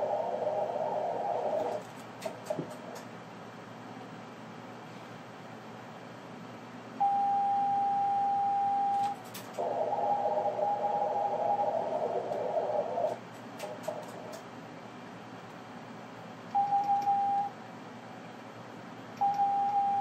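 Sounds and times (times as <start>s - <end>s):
steady morse tone: 0.0s - 1.8s, 9.6s - 13.2s
wavering noisy echo tone: 0.0s - 1.8s, 9.6s - 13.2s
receiver hiss: 0.0s - 1.9s, 9.0s - 13.7s.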